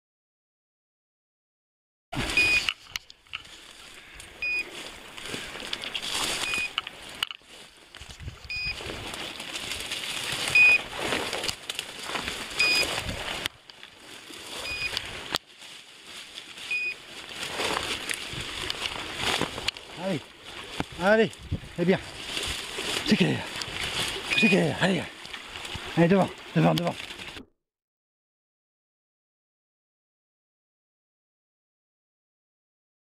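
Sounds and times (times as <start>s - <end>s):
short high beeper pips: 2.2s - 2.7s, 6.4s - 6.8s, 10.5s - 10.8s, 14.6s - 15.0s, 24.3s - 24.8s
brambles rustling and crackling: 2.2s - 27.4s.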